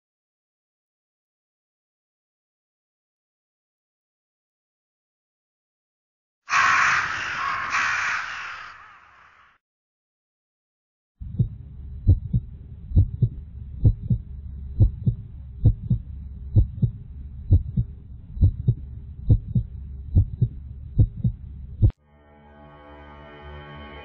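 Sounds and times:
heartbeat double thump: 11.2 - 22.0
low hum: 11.2 - 22.0.

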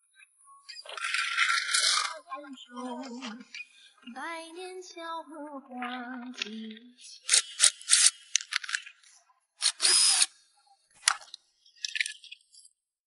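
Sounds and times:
ratchet wrench clicking: 7.3 - 8.2, 9.6 - 10.3.

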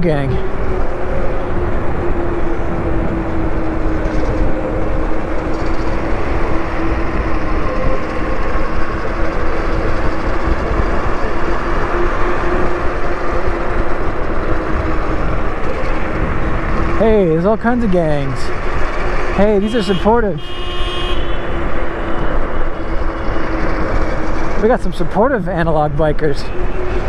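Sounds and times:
wind on microphone: 0.0 - 17.3.

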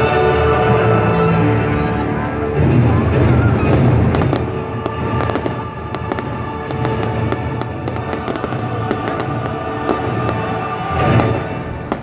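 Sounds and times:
soundtrack music: 0.0 - 12.0
fireworks cracking and popping: 3.7 - 12.0.

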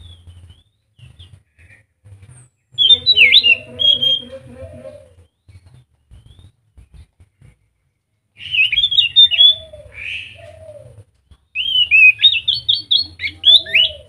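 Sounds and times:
thrush singing warbling notes: 2.8 - 5.1.

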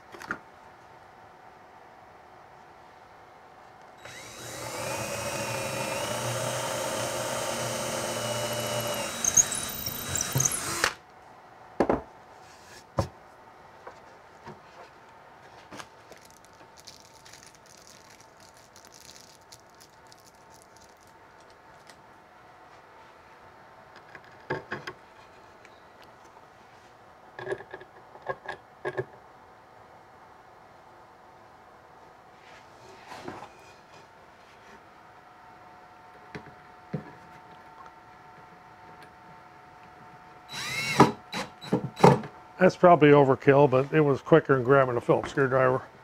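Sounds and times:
cordless drill boring wood: 4.0 - 11.0, 40.5 - 42.1.

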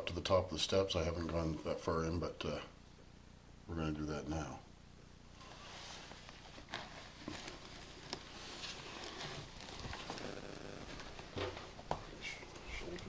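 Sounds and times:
footsteps crunching on debris: 6.6 - 12.1.

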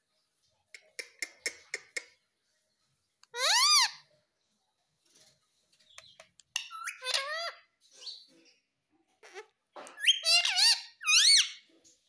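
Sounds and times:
parakeet calls: 3.3 - 4.0, 6.6 - 8.2, 9.2 - 11.6.

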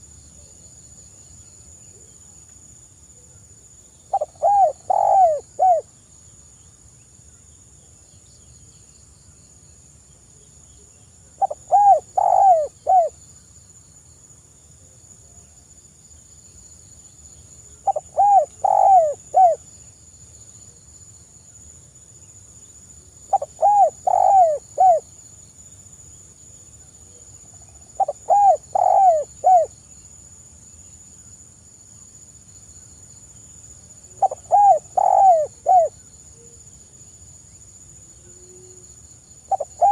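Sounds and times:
dove cooing: 4.1 - 5.8, 11.4 - 13.1, 17.8 - 19.6, 23.3 - 25.0, 28.0 - 29.7, 34.2 - 36.0, 39.5 - 39.9.

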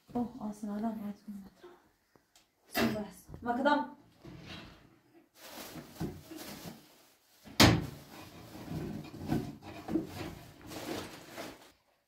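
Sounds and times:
rustling: 5.3 - 11.8.

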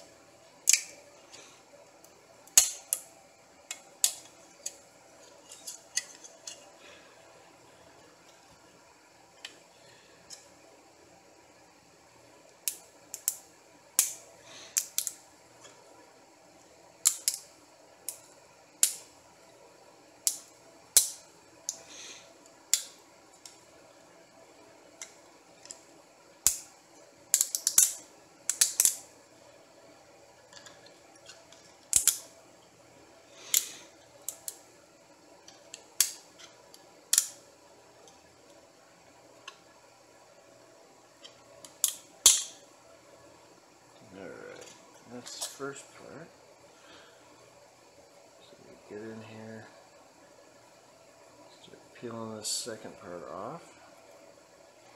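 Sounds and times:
plastic snapping and clicking: 0.6 - 1.0, 27.3 - 29.0, 30.6 - 32.2.

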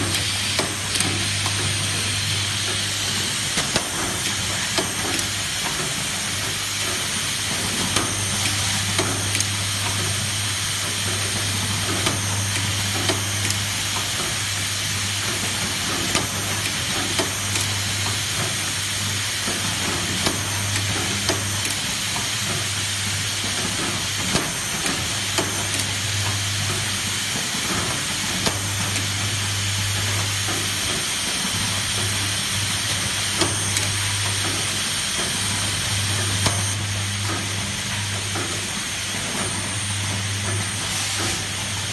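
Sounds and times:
circular saw machine humming: 0.0 - 24.2.

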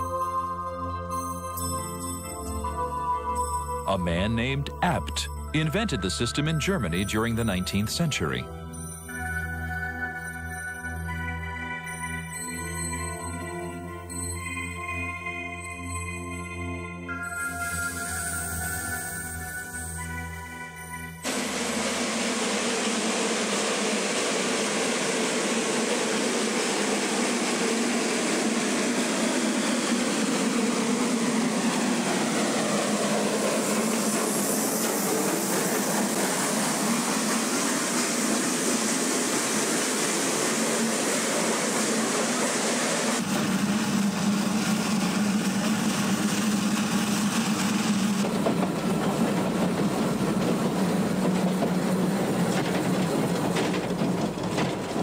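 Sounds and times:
steam locomotive passing: 3.8 - 8.5, 17.2 - 55.0
train running noise on board: 17.2 - 55.0
carriages rolling on track: 21.2 - 55.0.

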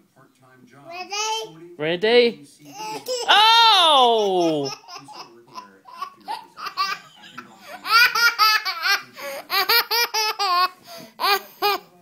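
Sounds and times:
toddler girl laughing: 4.2 - 7.0.

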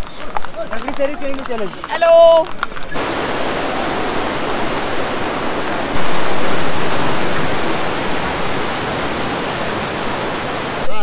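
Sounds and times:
fast-flowing stream rushing: 3.0 - 11.0.

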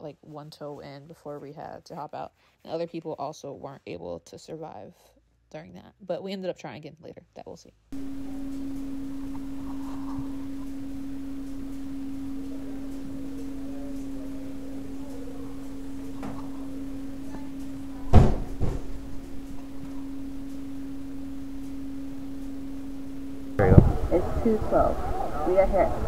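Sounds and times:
steady hum: 7.9 - 26.0
sharp knocks: 18.0 - 19.0.

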